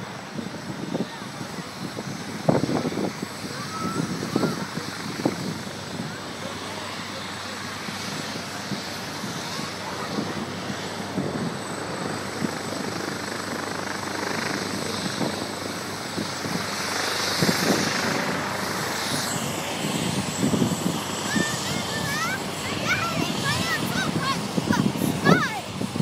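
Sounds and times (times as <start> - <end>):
helicopter rotor and turbine: 0.0 - 26.0
children shouting: 21.3 - 25.7.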